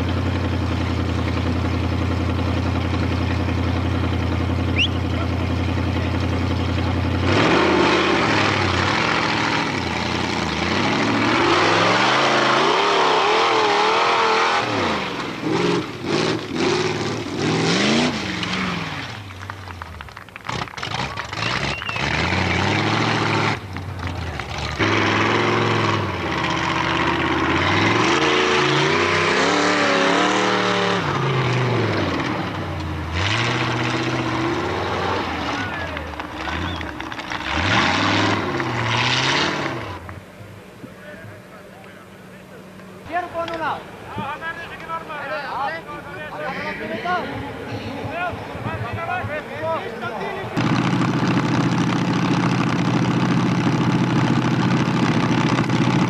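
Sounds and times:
another car engine revving: 0.0s - 40.4s, 50.5s - 56.0s
car engine idling and revving: 0.0s - 45.1s, 47.1s - 56.0s.

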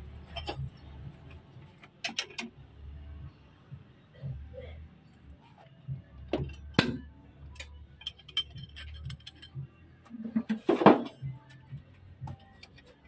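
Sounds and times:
wrench clinking against bolts: 0.3s - 0.8s, 7.5s - 9.6s.

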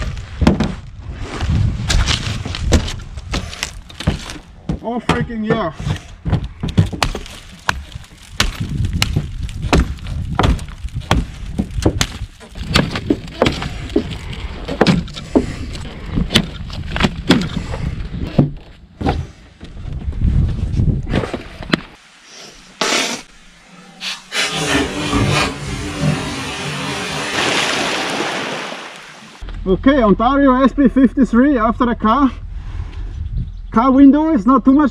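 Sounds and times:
glass crunching and breaking: 6.9s - 13.7s.

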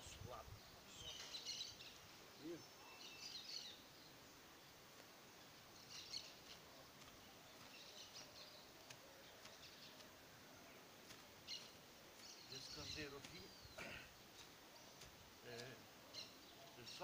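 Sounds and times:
faint bird chirps: 0.0s - 17.0s.

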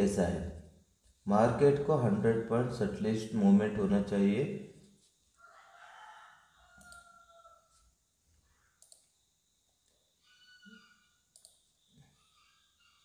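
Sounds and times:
computer mouse clicks: 6.8s - 7.1s, 8.8s - 9.2s, 11.3s - 11.7s.

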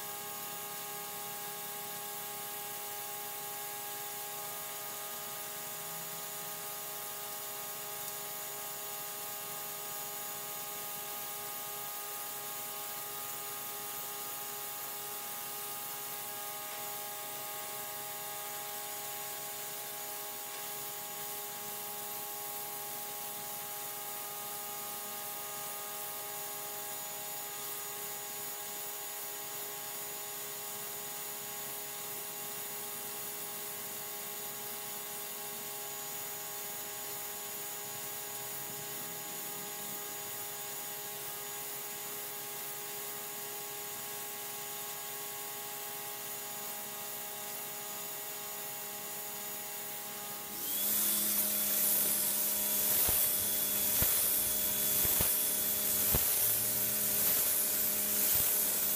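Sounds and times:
pressure washer humming and whining: 48.6s - 58.9s
water jet hissing on concrete: 50.6s - 58.9s.

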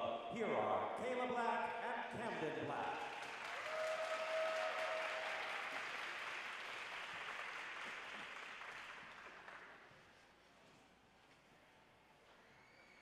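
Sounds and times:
crowd applauding: 2.7s - 9.9s
crowd cheering: 3.0s - 9.7s.

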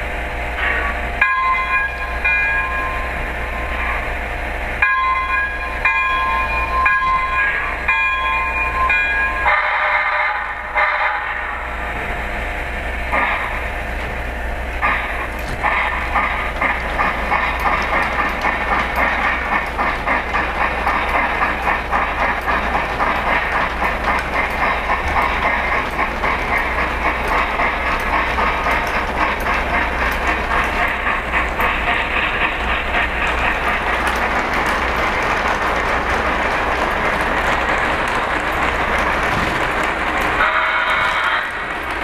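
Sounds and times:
low train hum: 0.0s - 42.0s
model train wheels clattering: 14.8s - 42.0s.

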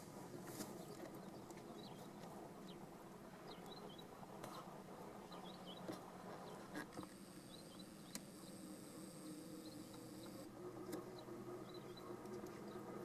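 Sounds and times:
insect buzzing: 7.0s - 10.5s.

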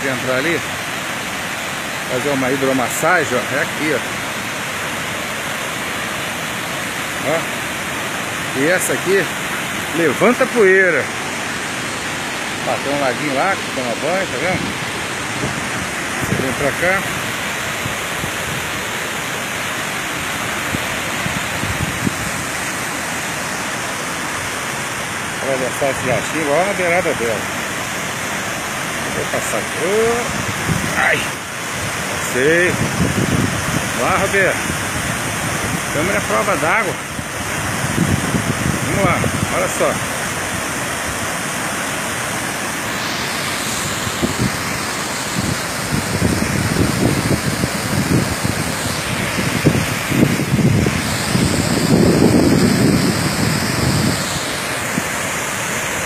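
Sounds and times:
waterfall rushing: 0.0s - 56.0s
wind buffeting microphone: 14.0s - 18.9s, 20.3s - 22.7s, 30.0s - 36.0s, 37.1s - 39.6s, 43.8s - 55.2s.

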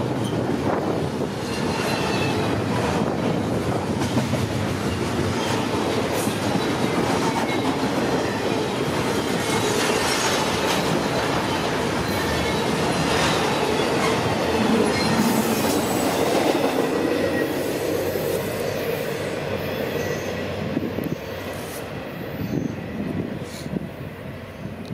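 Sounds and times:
freight train wheels on rail: 0.0s - 24.9s
high wheel squeal: 1.4s - 2.6s, 12.0s - 23.0s.

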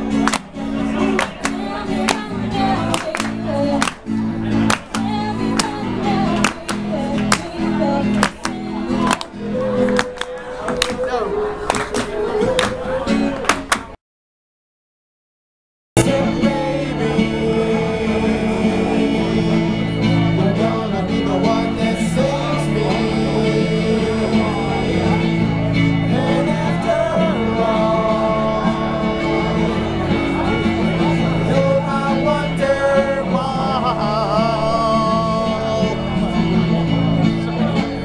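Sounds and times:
guitar accompaniment: 0.0s - 14.0s, 16.0s - 38.0s
man singing into microphone: 16.0s - 36.8s.

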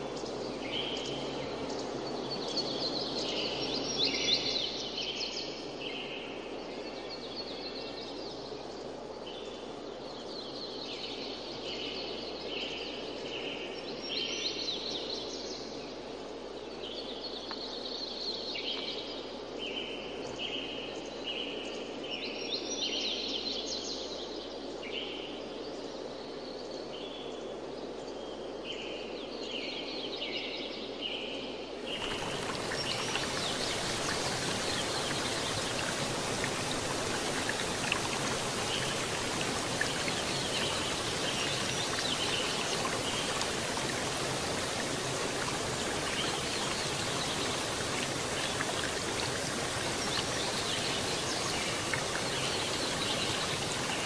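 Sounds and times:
birds singing and calling: 31.9s - 54.0s.

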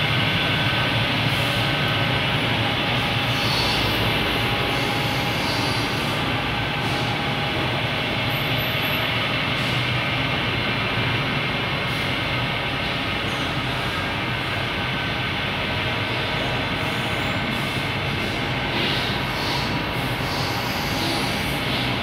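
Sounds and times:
centrifugal dryer running: 0.0s - 13.0s.

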